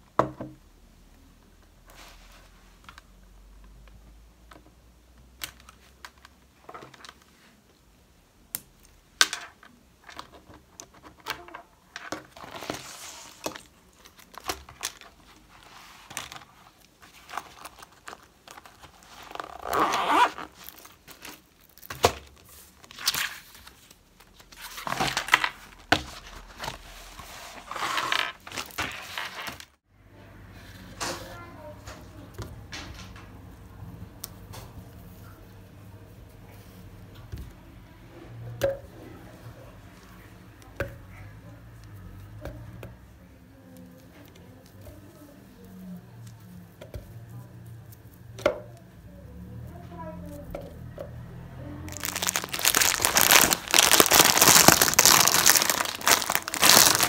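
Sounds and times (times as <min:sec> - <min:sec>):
plastic pouch crinkling: 0:12.4 - 0:22.0, 0:51.8 - 0:57.0.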